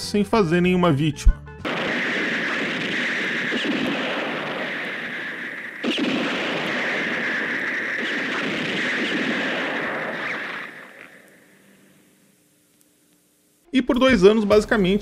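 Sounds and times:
harsh rushing noise: 1.7 - 11.0.

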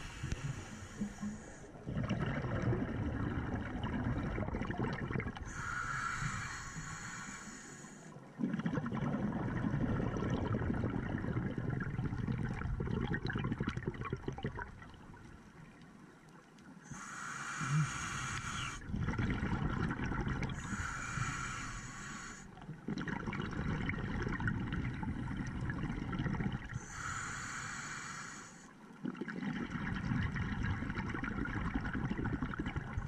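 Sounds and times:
regulator hissing inhale: 0.0 - 1.8, 5.4 - 8.2, 16.9 - 18.8, 20.5 - 22.6, 26.8 - 28.8
bubbling exhale underwater: 0.0 - 7.3, 8.3 - 15.0, 17.5 - 28.0, 29.0 - 33.0.

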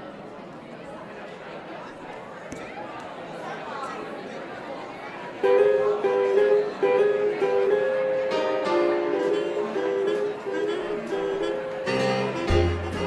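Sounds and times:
swing guitar playing: 5.4 - 13.0.

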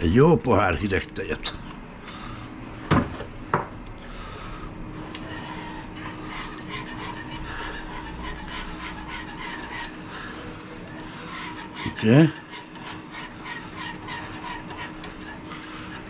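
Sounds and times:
whisk scraping a pot: 5.0 - 16.0.

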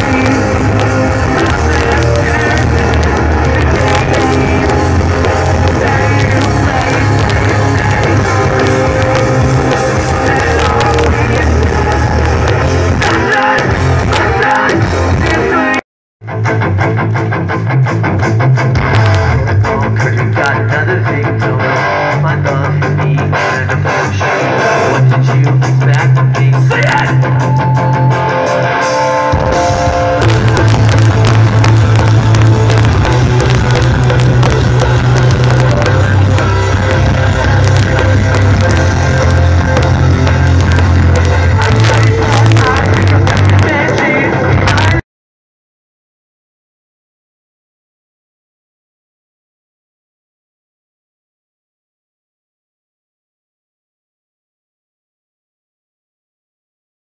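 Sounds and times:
live rock band playing: 0.0 - 45.0.

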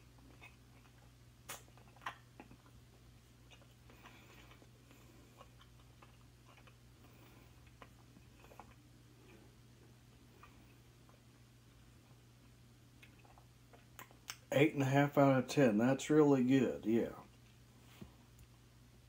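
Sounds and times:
mouth clicks and smacks eating: 0.0 - 9.5, 12.1 - 14.5
faint low hum: 0.0 - 19.0.

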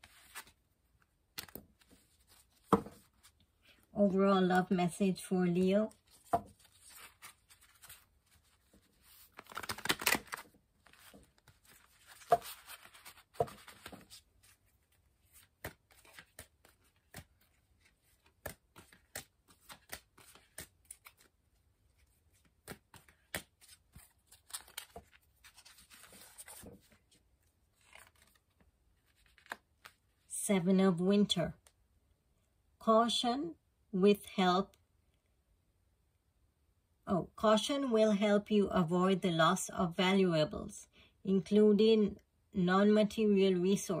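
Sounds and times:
cards shuffling: 0.0 - 0.6, 1.3 - 3.3, 5.9 - 21.3, 21.9 - 30.1.

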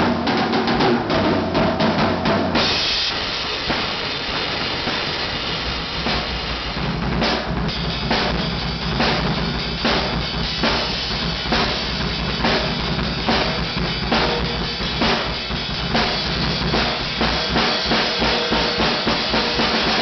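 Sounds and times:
snare and bass drum hits: 0.0 - 20.0
cymbal wash: 2.6 - 20.0.

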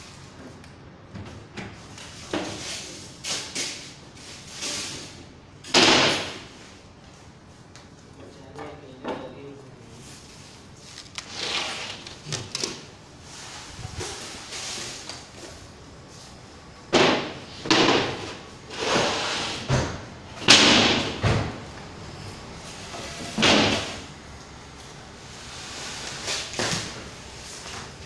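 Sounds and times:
wooden boards thudding: 16.9 - 18.4, 19.6 - 21.6.

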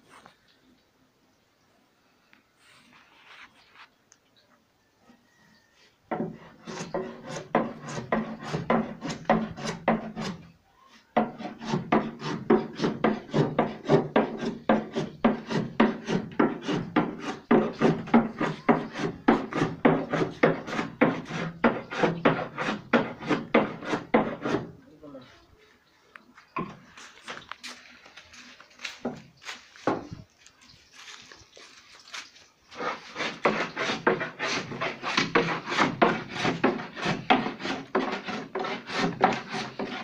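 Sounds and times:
hand tool rasping wood: 6.1 - 10.5, 11.2 - 24.8, 32.7 - 40.0.

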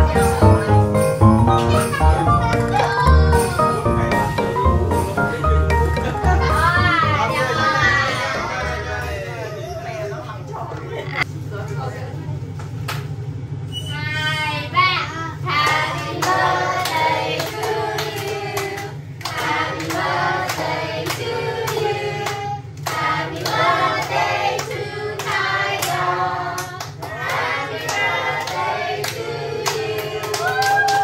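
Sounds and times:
hands clapping: 1.5 - 3.6, 26.6 - 31.0
group of voices singing: 6.5 - 9.2, 15.5 - 30.4.

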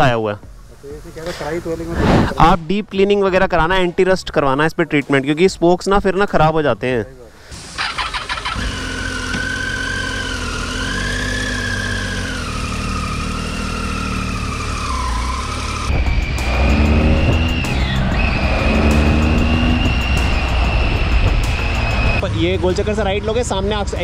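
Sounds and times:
motorcycle engine accelerating: 7.8 - 23.3.

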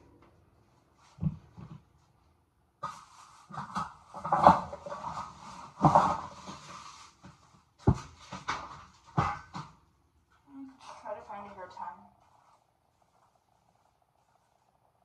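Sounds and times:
household items knocking and rustling: 2.8 - 9.8.

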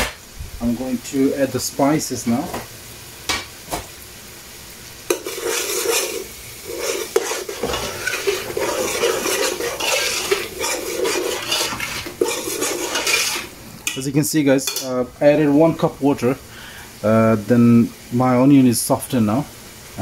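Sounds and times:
onions sizzling: 0.0 - 20.0
metal spoon scraping a pot: 5.1 - 13.6.

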